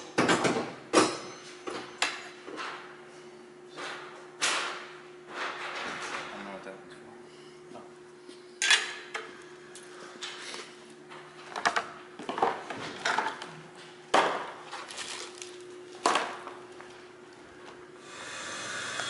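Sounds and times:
plastic packaging clacks and rustles: 0:14.7 - 0:16.2.

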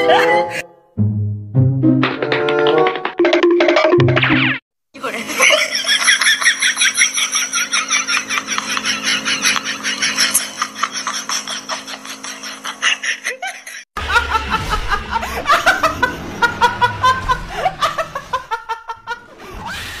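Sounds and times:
young woman laughing: 0:05.0 - 0:19.2.

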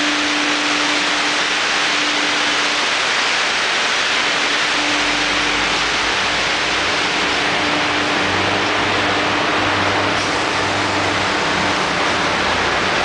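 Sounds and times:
printing machine hissing: 0:00.0 - 0:13.0
faint hum: 0:04.1 - 0:12.4.

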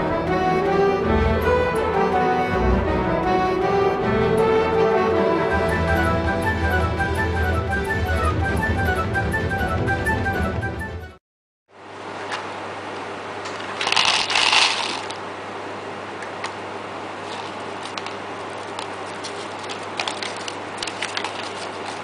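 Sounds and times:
low background hum: 0:11.7 - 0:22.0
rustling: 0:17.2 - 0:22.0.

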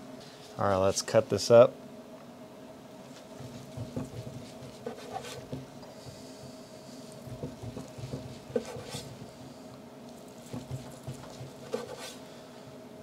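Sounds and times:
knife slicing on cutting board: 0:10.5 - 0:12.2.

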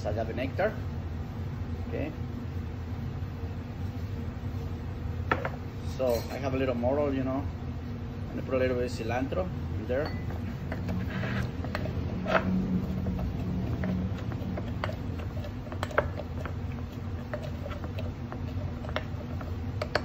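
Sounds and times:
low hum: 0:07.4 - 0:20.0.

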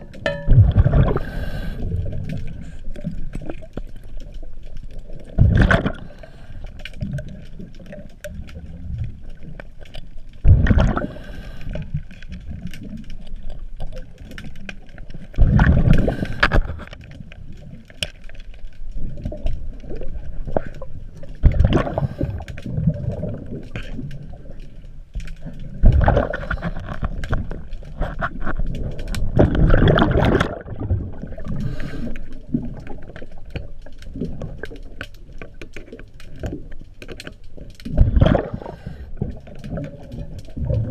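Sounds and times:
regulator exhaled bubbles rushing: 0:00.5 - 0:02.6, 0:10.4 - 0:11.2, 0:29.3 - 0:31.7, 0:37.9 - 0:38.9
diver breathing noise: 0:01.0 - 0:02.2.

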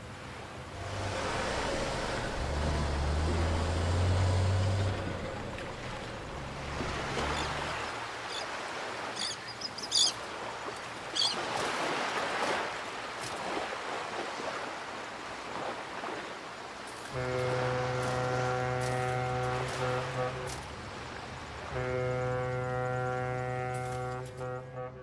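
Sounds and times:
wind and water noise: 0:00.0 - 0:25.0
low engine drone: 0:00.4 - 0:07.9.

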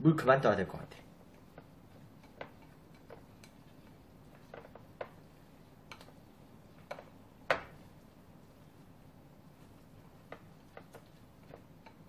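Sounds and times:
chopsticks tapping ceramic bowl: 0:01.3 - 0:08.1, 0:09.6 - 0:12.0.

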